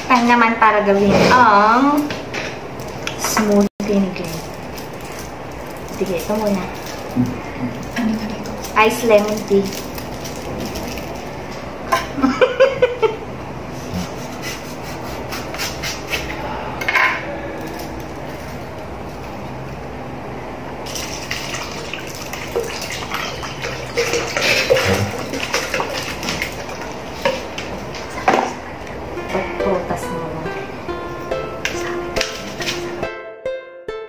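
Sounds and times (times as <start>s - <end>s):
liquid pouring into a jug: 20.9s - 27.0s.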